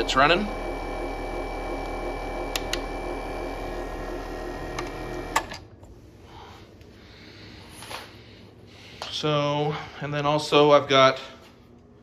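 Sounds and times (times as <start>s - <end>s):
water pump humming: 0.0s - 5.6s.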